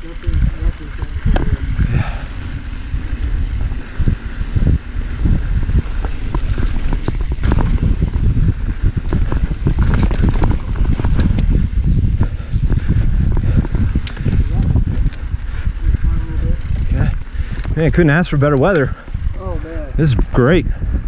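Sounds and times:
tyres rumbling on dirt: 0.0s - 20.6s
bike rattling and knocking: 0.0s - 21.0s
wind buffeting microphone: 0.0s - 21.0s.

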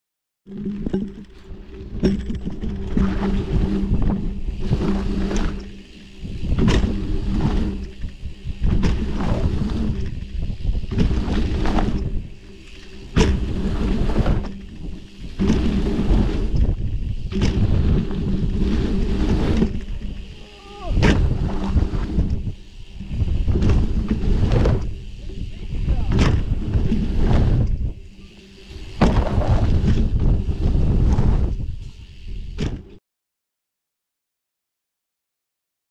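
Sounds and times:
tyres rumbling over dirt: 0.5s - 32.9s
wind buffeting microphone: 1.5s - 32.9s
bike landing knocks: 21.0s - 21.4s.

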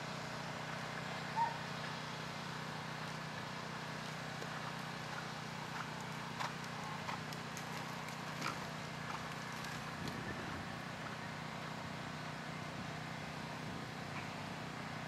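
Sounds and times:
steady low hum: 0.0s - 15.0s
horse hooves trotting on sand: 4.0s - 11.2s.

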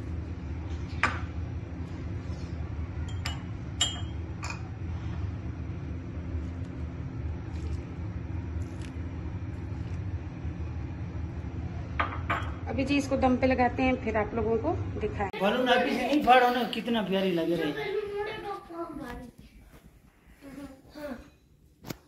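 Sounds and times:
utensil clinking on metal pot: 3.1s - 4.6s.

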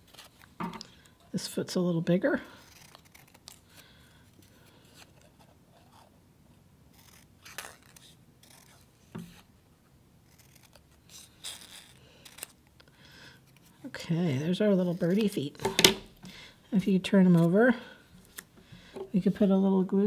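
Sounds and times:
scissors snipping paper: 2.6s - 3.8s, 6.9s - 8.9s, 10.3s - 12.6s.

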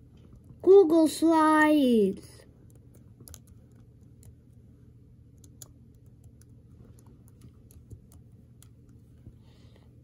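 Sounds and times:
laptop keyboard typing: 2.6s - 4.7s, 5.3s - 9.0s.

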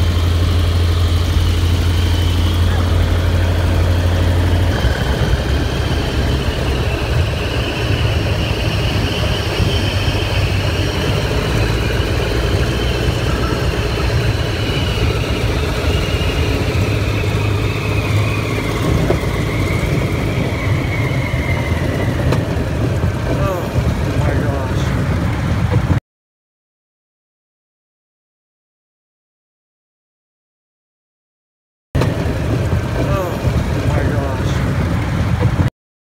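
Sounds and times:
propeller plane engine running: 0.0s - 26.0s, 32.0s - 35.7s
wind rushing: 0.0s - 26.0s.

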